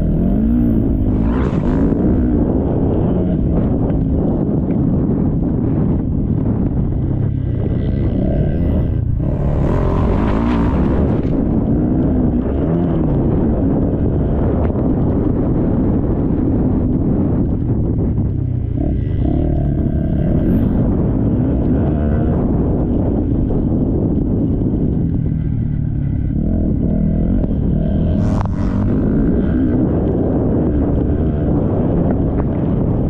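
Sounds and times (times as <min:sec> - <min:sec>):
motocross bike engine revving: 0:00.0 - 0:23.2, 0:25.7 - 0:33.0
steady low rumble: 0:00.0 - 0:33.0.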